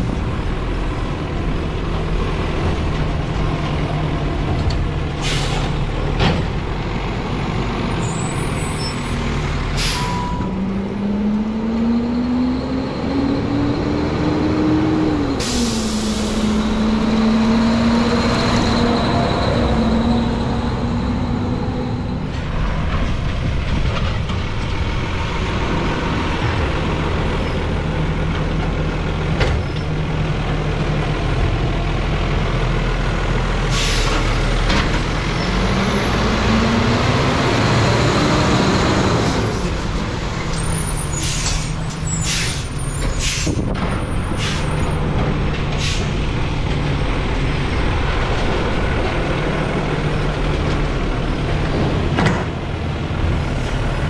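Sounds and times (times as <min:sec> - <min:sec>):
air brake hisses: 0:05.2 - 0:05.8, 0:09.7 - 0:10.4, 0:15.4 - 0:16.6, 0:33.7 - 0:34.2, 0:41.0 - 0:43.6, 0:44.4 - 0:44.8, 0:45.8 - 0:46.2.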